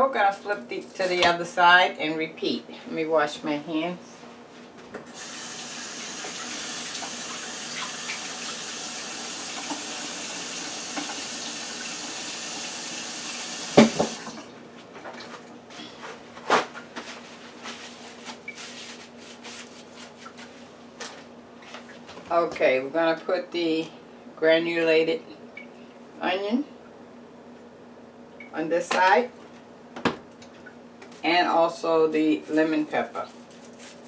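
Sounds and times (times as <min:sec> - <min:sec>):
tap running into sink: 0:13.7 - 0:14.4.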